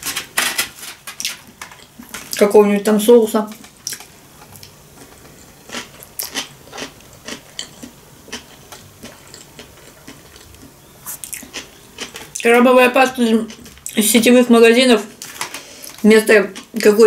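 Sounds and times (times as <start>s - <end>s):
person chewing: 3.8s - 12.5s.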